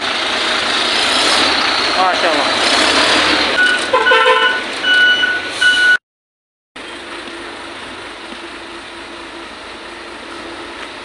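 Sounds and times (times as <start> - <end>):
truck engine running: 0.0 - 6.0, 6.8 - 11.0
reversing alarm beeping: 3.6 - 6.0.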